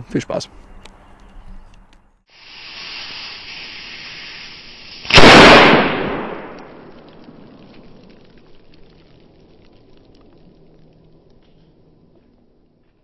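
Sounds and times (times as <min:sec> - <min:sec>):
fuse hissing: 0:02.3 - 0:05.2
firecracker bang: 0:02.4 - 0:07.6.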